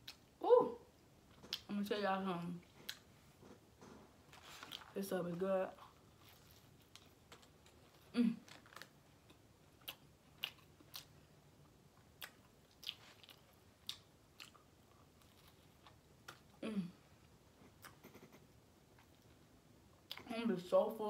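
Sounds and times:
person chewing sandwich: 2.7 - 4.9, 5.8 - 16.6, 17.2 - 20.2
mouth clicks and crunches: 5.7 - 11.2, 12.0 - 16.5.

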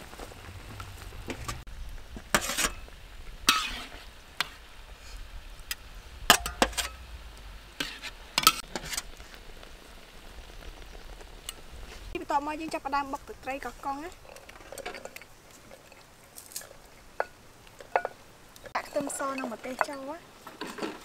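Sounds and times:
metal ladle scraping a wok: 2.2 - 7.1, 7.7 - 9.4, 14.2 - 21.0.

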